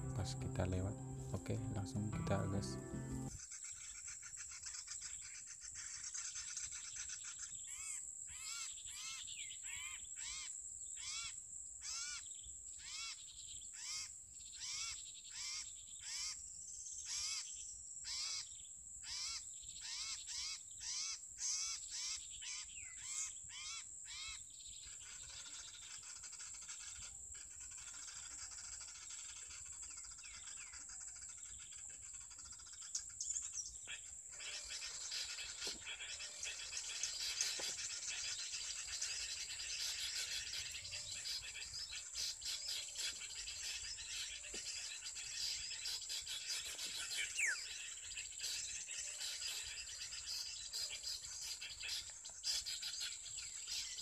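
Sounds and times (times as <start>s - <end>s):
recorded bird call: 0.0s - 16.4s, 18.1s - 54.0s
faint bird chirps: 18.1s - 54.0s.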